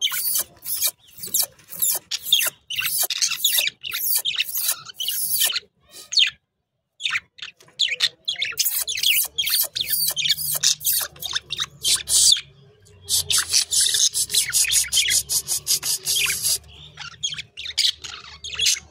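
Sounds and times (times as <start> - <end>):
budgerigars chattering: 0.0 - 5.7, 7.0 - 18.9.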